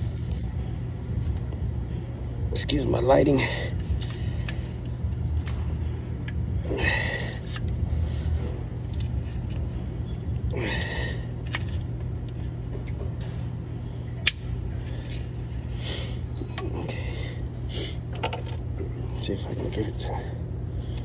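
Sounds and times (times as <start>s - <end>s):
low hum: 0.0s - 21.0s.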